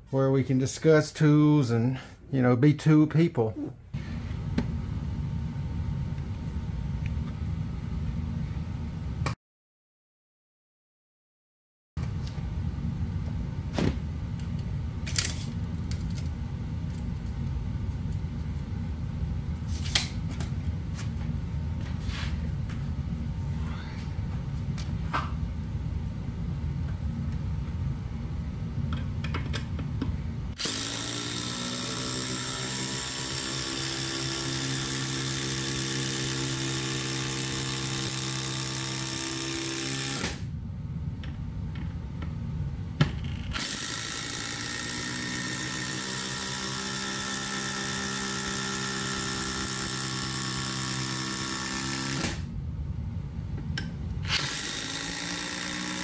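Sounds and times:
low rumble: 40.5s - 43.5s.

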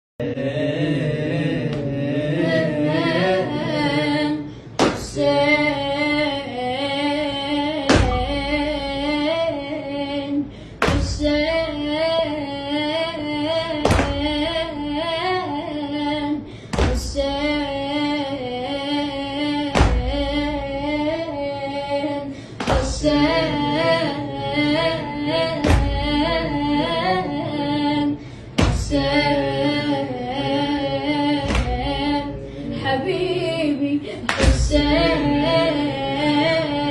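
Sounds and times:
boy singing a lament: 0.2s - 36.9s
hand slapping chest: 4.8s - 5.1s, 34.3s - 34.6s.

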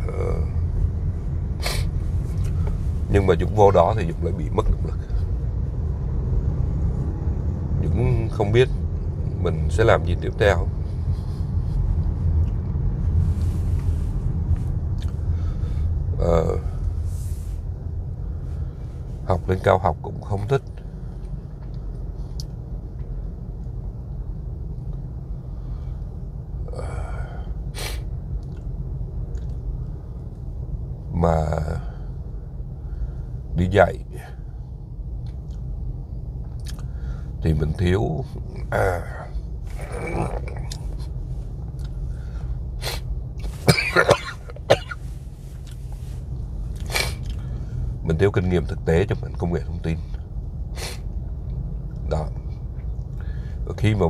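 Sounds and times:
steady low rumble: 0.0s - 54.0s
man coughing: 43.6s - 45.0s.

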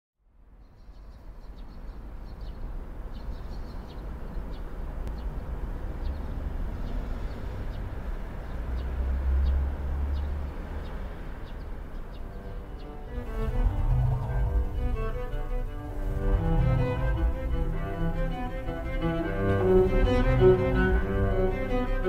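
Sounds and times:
low outdoor rumble: 12.0s - 22.0s.

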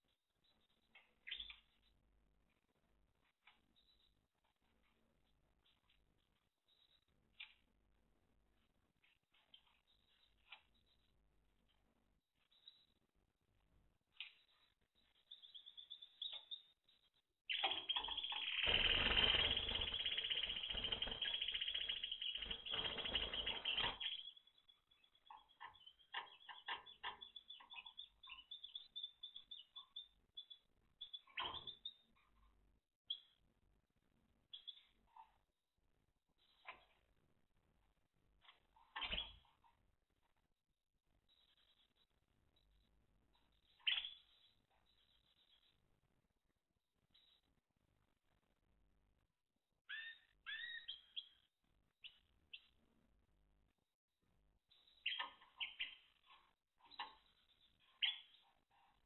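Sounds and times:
canary chirping: 0.4s - 13.2s, 14.1s - 35.5s, 36.4s - 37.2s, 38.4s - 39.8s, 41.3s - 46.0s, 47.0s - 47.6s, 49.8s - 52.9s, 54.7s - 59.0s.

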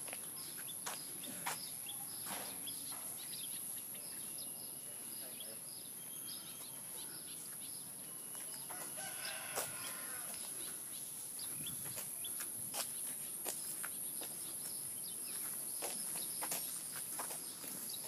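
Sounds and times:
rooster-like animal call: 8.7s - 10.4s.

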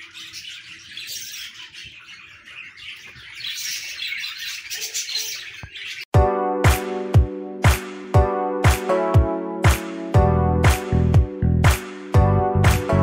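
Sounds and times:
budgerigars chirping: 0.0s - 6.1s
music with heavy beat: 6.2s - 13.0s.

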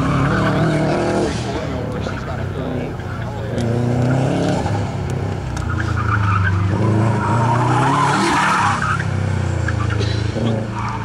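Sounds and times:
car engine revving hard: 0.0s - 2.8s, 3.4s - 5.0s
tires squealing: 0.0s - 11.0s.

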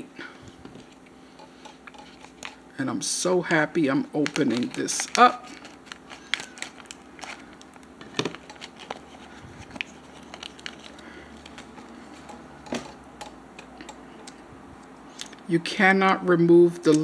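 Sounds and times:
plastic bag crinkling: 3.5s - 13.1s
scissors snipping plastic bag: 4.2s - 9.0s.

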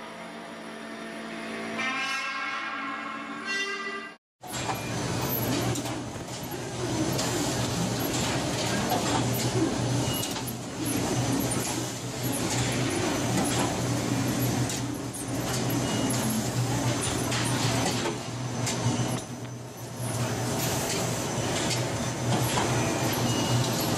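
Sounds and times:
mechanical noise: 4.4s - 23.9s.

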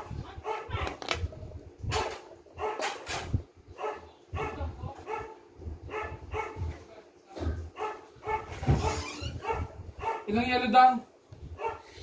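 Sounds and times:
dog barking: 0.4s - 1.0s, 1.9s - 3.1s, 3.8s - 6.7s, 7.7s - 10.4s, 11.6s - 12.0s.

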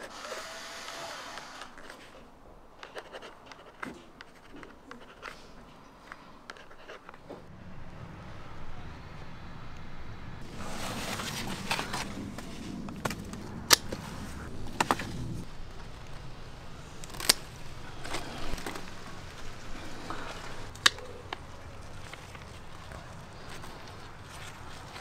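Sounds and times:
leaves and stalks rustling: 7.4s - 25.0s
scissors snipping stems: 16.8s - 21.5s.

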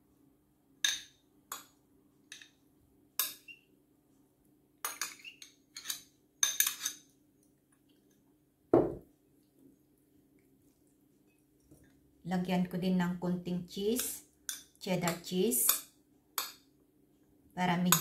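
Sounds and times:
spoon clinking against glass bowl: 4.8s - 7.0s.

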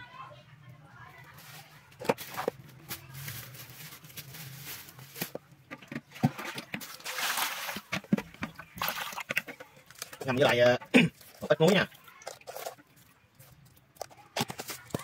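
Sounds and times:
water pouring into plastic basin: 5.2s - 13.9s.

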